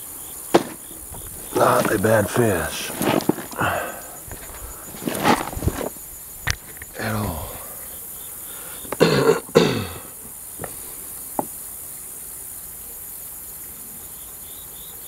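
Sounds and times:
insect chirping: 0.0s - 15.0s
steady background hiss: 0.0s - 15.0s
man's short vocal sound: 1.4s - 5.5s, 6.9s - 7.9s.

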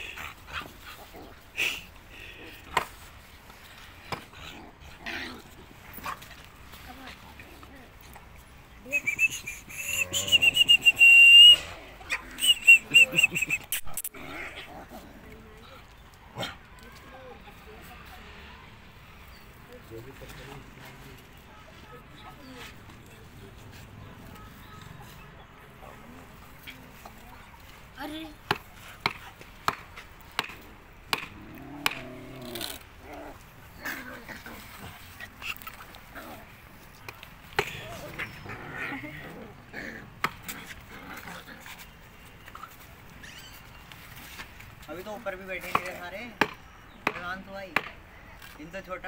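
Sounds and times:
puppy squealing and yelping: 43.1s - 43.9s.

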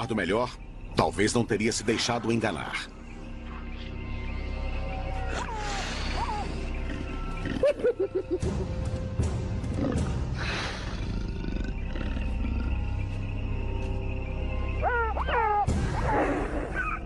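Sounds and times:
background music: 0.0s - 17.0s
animals growling grunts: 9.7s - 13.0s.

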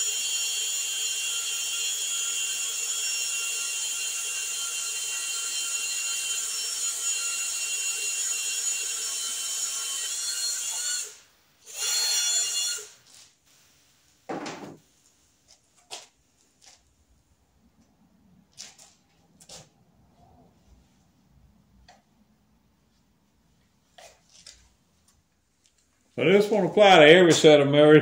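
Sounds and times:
cordless drill whining: 10.7s - 13.0s.

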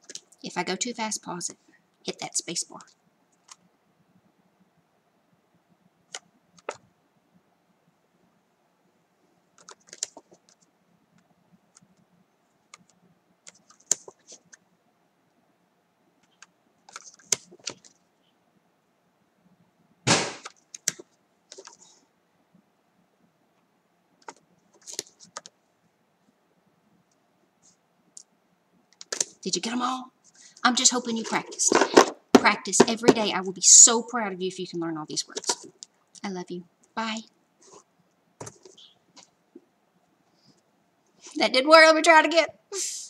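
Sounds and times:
paper cards rustling: 9.6s - 10.7s, 16.9s - 18.0s, 20.4s - 21.9s, 24.2s - 25.5s, 30.8s - 32.2s, 37.6s - 39.3s
sharp knock: 20.1s - 20.5s.

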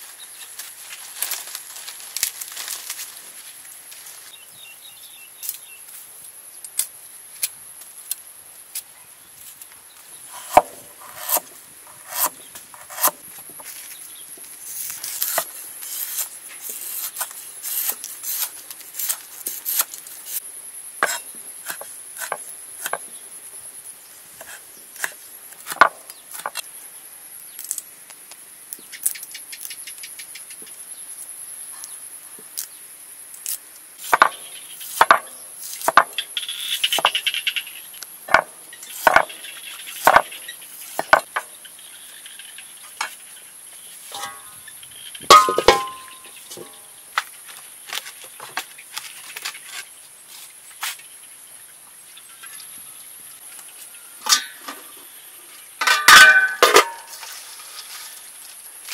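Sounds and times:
cleaver chopping on wooden board: 10.4s - 11.4s, 34.1s - 34.4s, 35.0s - 36.1s, 39.0s - 39.3s, 40.0s - 40.3s
high insect buzz: 33.4s - 47.1s.

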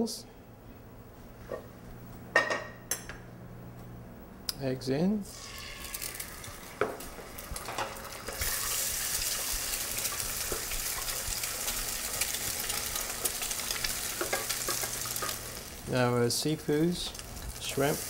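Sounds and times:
egg sizzling in a pan: 5.3s - 18.0s.

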